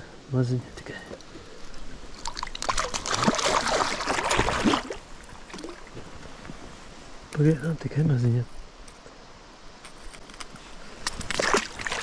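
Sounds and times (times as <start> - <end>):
fish splashing in water: 2.2 - 5.9, 11.3 - 12.0.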